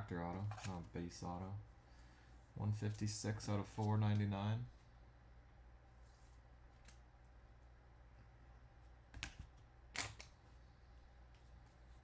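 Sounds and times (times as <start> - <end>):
faint steady hum: 0.0 - 12.0
cards and plastic holders handled: 0.2 - 0.9.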